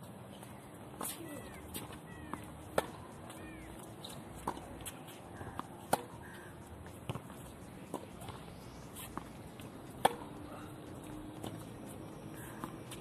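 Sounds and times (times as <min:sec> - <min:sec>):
tennis ball struck by rackets: 0:01.0 - 0:03.0, 0:04.0 - 0:05.0, 0:05.6 - 0:08.4, 0:09.0 - 0:10.4.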